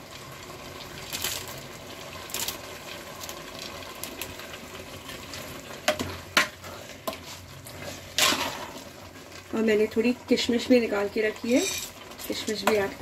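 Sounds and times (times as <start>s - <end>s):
low sizzle of cooking mixture: 0.0s - 13.0s
spoon knocking and scraping pot: 11.6s - 12.9s.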